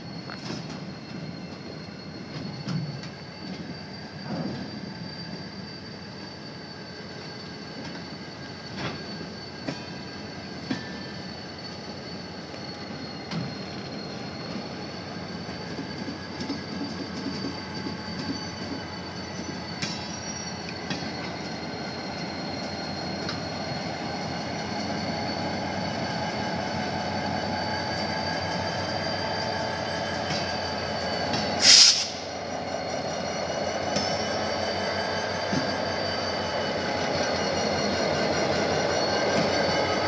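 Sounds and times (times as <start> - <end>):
train rumbling past: 0.0 - 40.0
wheel squeal: 0.0 - 40.0
loud hissing burst: 31.6 - 32.3.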